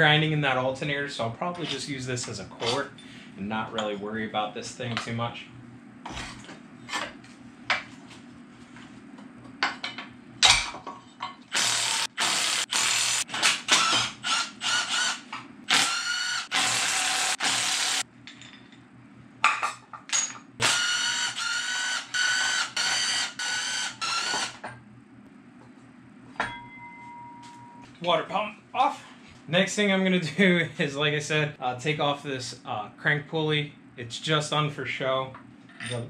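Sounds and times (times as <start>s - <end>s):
power ratchet motor whine: 11.5s - 18.0s, 20.6s - 24.6s.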